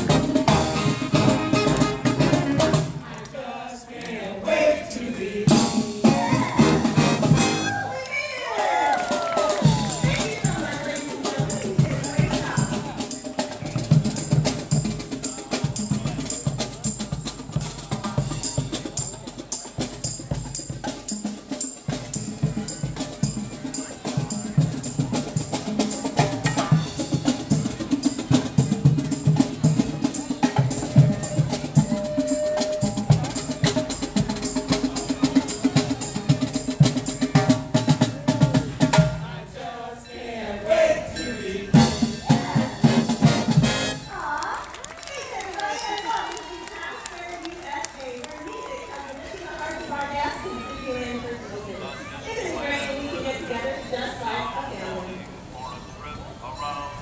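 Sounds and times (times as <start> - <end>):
marching band playing: 0.0 - 3.2, 4.5 - 7.8, 9.3 - 39.4, 40.6 - 44.2.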